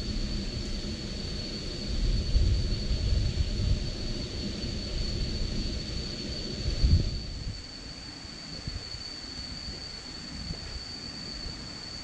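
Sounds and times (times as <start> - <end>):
wind buffeting microphone: 0.0 - 7.7.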